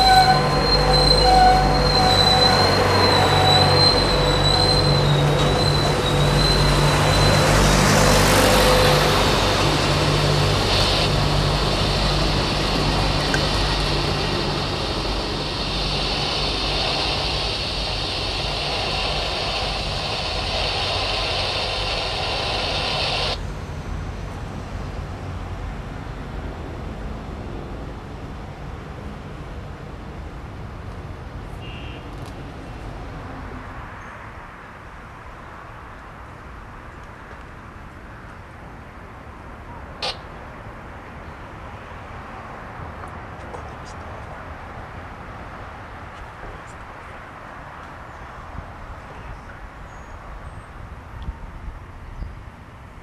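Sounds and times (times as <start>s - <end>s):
train wheels squealing: 0.0s - 23.4s
rumble of passing train cars: 0.0s - 53.0s.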